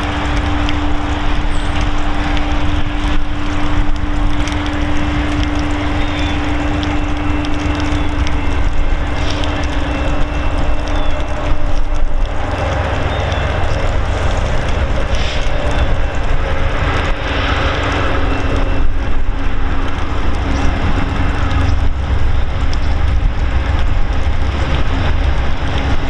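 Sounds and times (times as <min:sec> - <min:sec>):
sustained tone: 0:00.0 - 0:14.1
diesel locomotive engine drone: 0:00.0 - 0:26.0.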